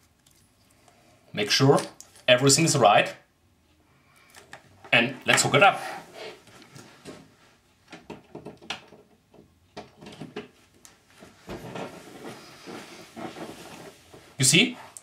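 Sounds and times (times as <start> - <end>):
small handling clicks and knocks: 7.9 - 11.0
rustling: 10.6 - 15.0.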